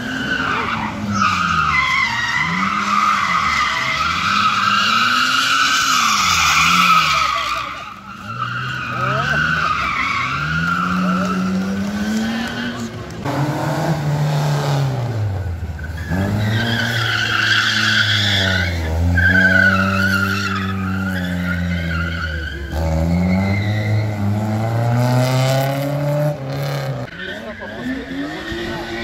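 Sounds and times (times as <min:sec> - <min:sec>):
tyres squealing: 0:00.0 - 0:13.2, 0:15.8 - 0:24.7
car engine revving: 0:00.0 - 0:29.0.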